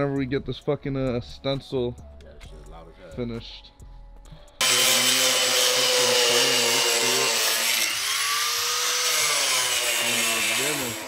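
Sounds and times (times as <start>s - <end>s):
power tool cutting wood: 4.6s - 11.0s.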